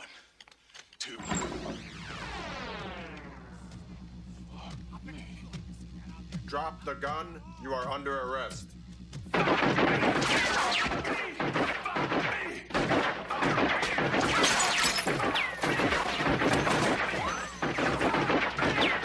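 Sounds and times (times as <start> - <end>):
submachine gun firing bursts: 9.3 - 19.0
bullets ricocheting off metal: 9.4 - 19.0
glass and bottles shattering: 14.2 - 17.6.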